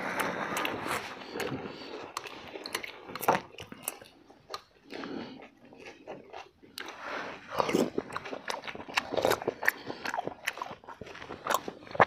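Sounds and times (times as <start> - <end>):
sharp mouth clicks: 0.0 - 5.1
chewing and wet smacks: 0.0 - 12.0.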